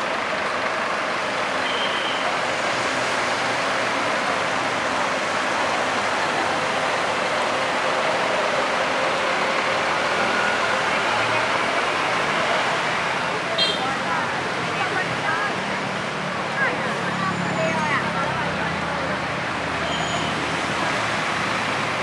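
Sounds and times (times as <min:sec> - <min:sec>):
bus diesel engine driving past: 0:00.0 - 0:22.0.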